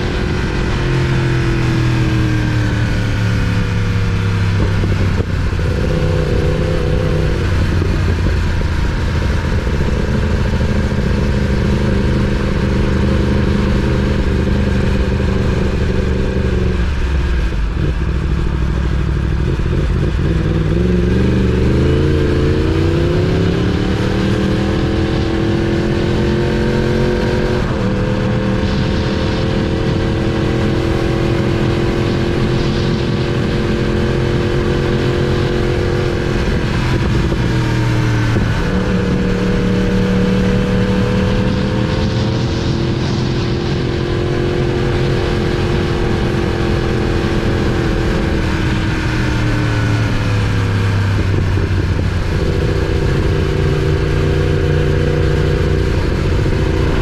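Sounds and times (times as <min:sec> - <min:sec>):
motorcycle engine: 0:00.0 - 0:57.0
wind rushing: 0:20.9 - 0:50.5.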